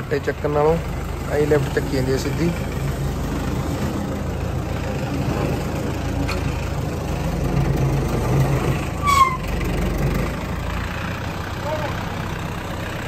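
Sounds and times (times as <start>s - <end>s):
tractor diesel engine idling: 0.0s - 13.0s
short high squeak: 9.0s - 9.5s.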